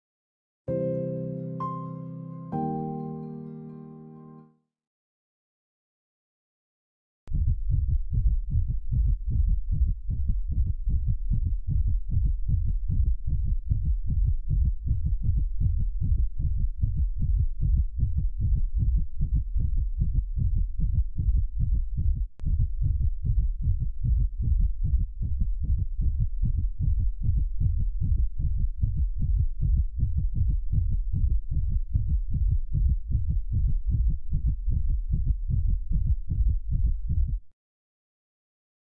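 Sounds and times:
fast heartbeat thumps: 7.3s - 37.5s.

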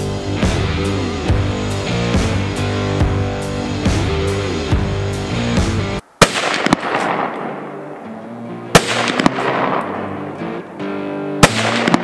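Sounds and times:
background music: 0.0s - 12.0s
rifle shots: 6.2s - 8.0s, 8.7s - 10.6s, 11.4s - 12.0s.

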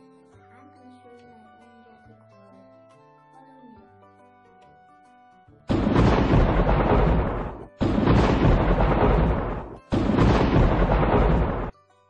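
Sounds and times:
thunderclaps: 5.7s - 11.7s.

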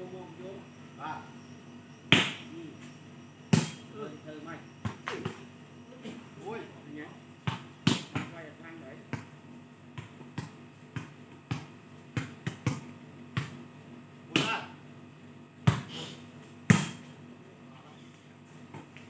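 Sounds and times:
volleyball smacks and thumps: 2.1s - 2.4s, 3.5s - 3.8s, 4.8s - 5.5s, 7.4s - 8.4s, 9.1s - 9.3s, 9.9s - 13.6s, 14.3s - 14.6s, 15.6s - 15.9s, 16.7s - 17.1s.

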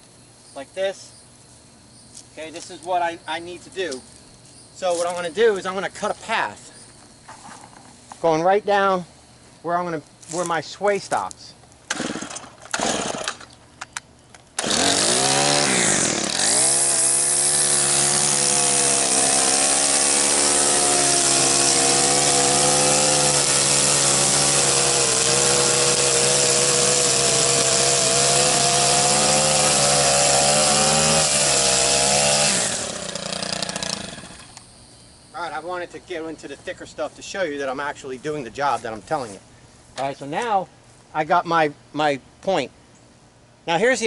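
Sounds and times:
string trimmer engine revving: 11.9s - 13.5s, 14.6s - 34.6s.

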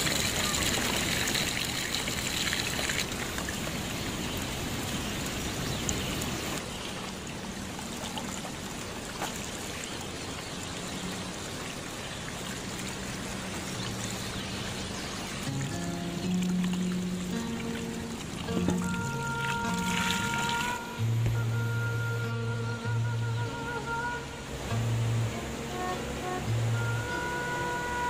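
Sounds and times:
water pouring and splashing: 0.0s - 21.5s.

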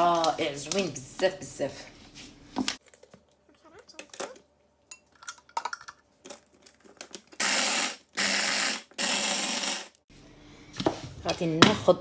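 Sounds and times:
mini chopper grinding: 7.4s - 10.0s.

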